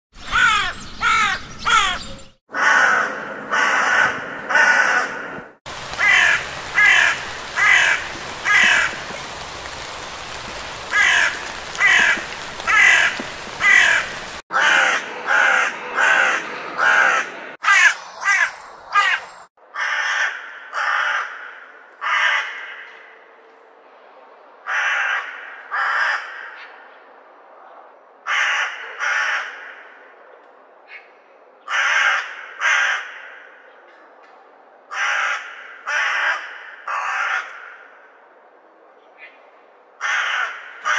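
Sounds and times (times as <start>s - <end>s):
crows cawing: 0.2s - 23.1s, 24.7s - 26.6s, 28.3s - 30.0s, 31.7s - 33.7s, 34.9s - 38.1s, 40.0s - 40.9s
background hiss: 17.6s - 19.5s.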